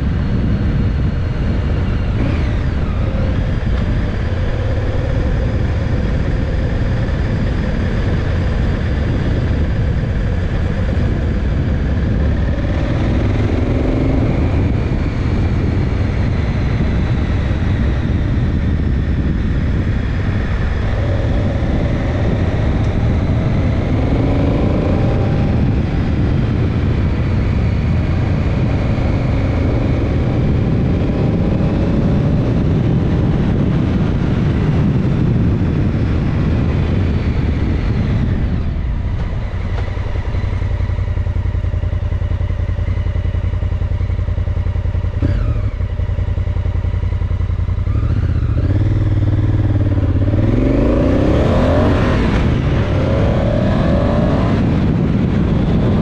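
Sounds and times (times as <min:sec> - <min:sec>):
motorcycle engine revving: 0:00.0 - 0:56.0
rush of wind noise: 0:00.0 - 0:56.0.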